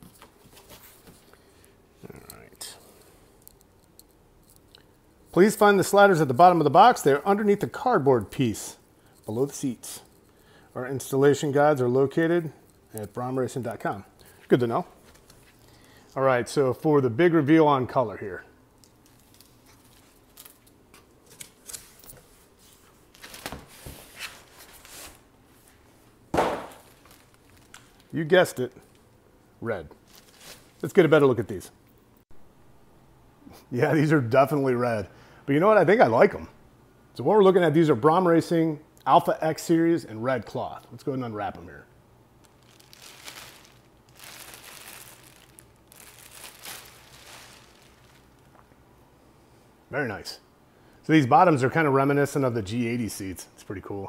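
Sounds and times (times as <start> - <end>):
packaging rustling and scraping: 19.0 - 25.8, 26.7 - 28.2, 30.0 - 30.8, 42.4 - 48.6
loud thump: 26.3 - 26.8.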